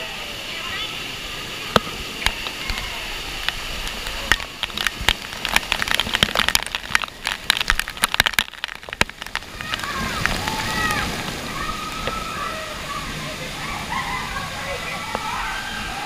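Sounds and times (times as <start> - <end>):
waterfall rushing: 0.0 - 16.0
water drops hitting camera housing: 1.7 - 12.2.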